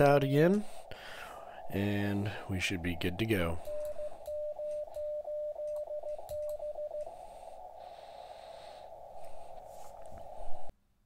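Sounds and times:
morse code beeps: 3.6s - 7.1s.

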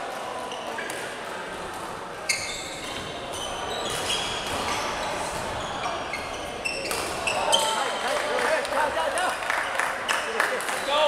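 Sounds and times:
sneakers squeaking on court: 2.2s - 7.9s
racket hitting shuttlecock: 6.9s - 7.3s.

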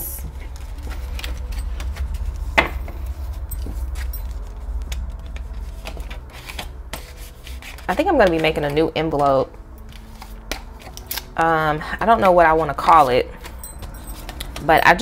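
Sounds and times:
plastic and paper rustling: 0.3s - 11.3s.

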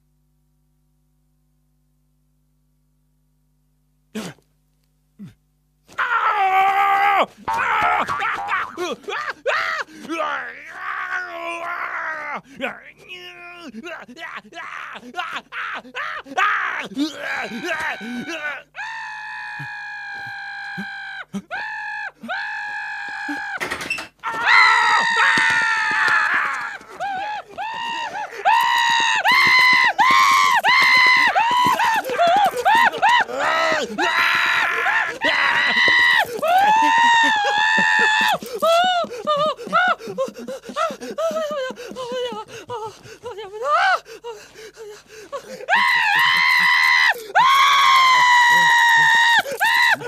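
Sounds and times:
cartoon dog screaming: 6.0s - 8.9s, 16.2s - 23.6s, 24.2s - 39.4s
woman shrieking: 6.0s - 12.4s, 14.2s - 50.0s.

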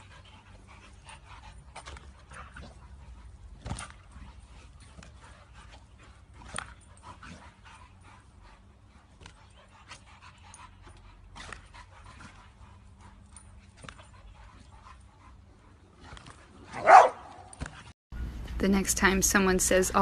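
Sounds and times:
dogs panting: 0.0s - 18.0s
dogs yipping: 16.1s - 17.9s.

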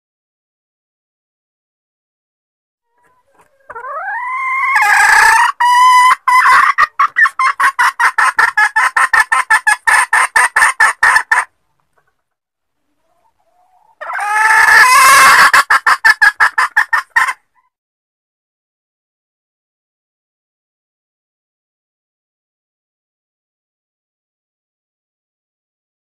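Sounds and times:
hen squawking and clucking: 2.9s - 12.2s, 12.9s - 17.7s.

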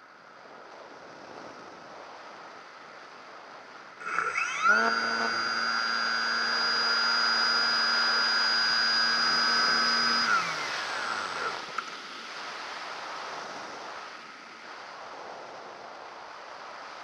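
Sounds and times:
model plane motor whine: 4.0s - 12.0s.

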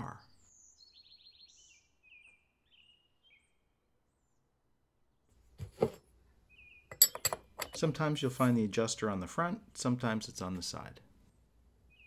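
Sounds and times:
faint bird chirps: 0.0s - 4.6s, 6.3s - 7.8s.

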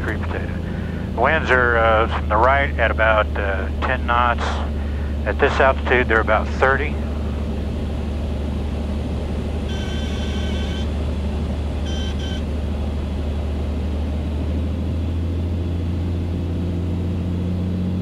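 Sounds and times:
propeller plane engine drone: 0.0s - 18.0s
electronic alert tones: 9.7s - 10.9s, 11.8s - 12.4s.

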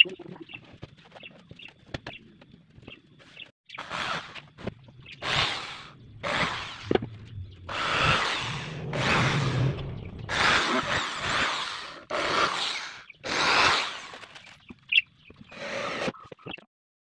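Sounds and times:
power drill boring into plywood: 3.8s - 7.0s, 10.3s - 14.3s.

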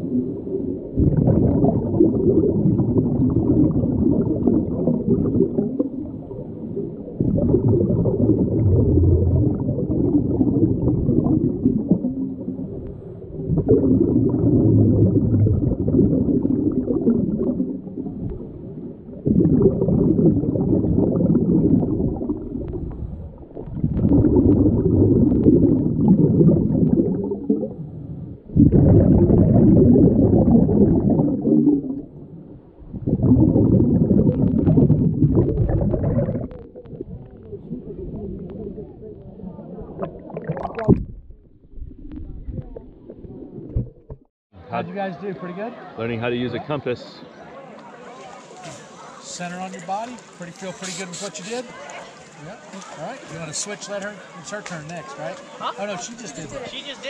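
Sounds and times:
muffled exhaled bubbles underwater: 0.0s - 44.3s.

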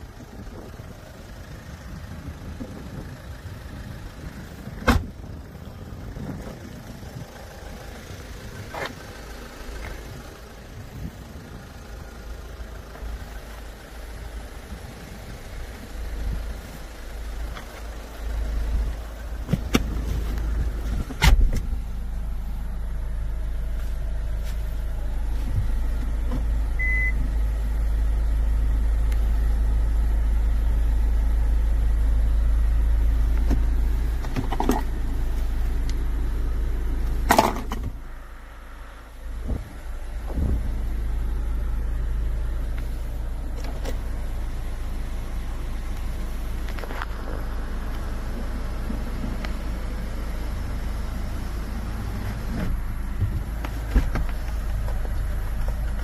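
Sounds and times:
low rumble inside car: 0.0s - 56.0s
car door shutting: 4.8s - 5.2s, 19.4s - 21.8s, 39.4s - 40.8s, 52.2s - 56.0s.

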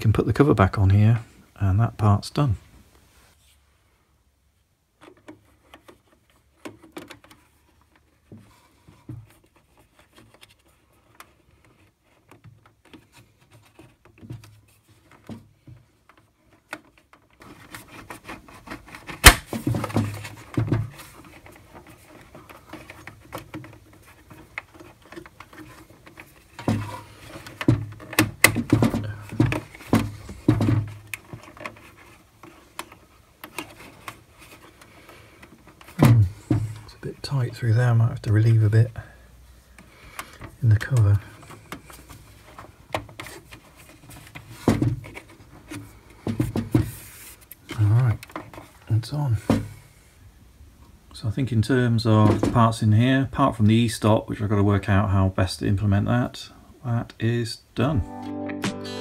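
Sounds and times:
knocks and rubbing: 5.0s - 38.6s, 40.4s - 48.8s.

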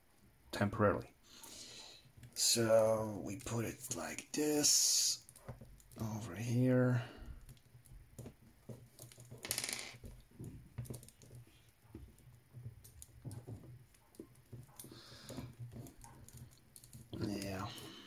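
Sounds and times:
hands handling plastic figure: 7.4s - 18.0s.

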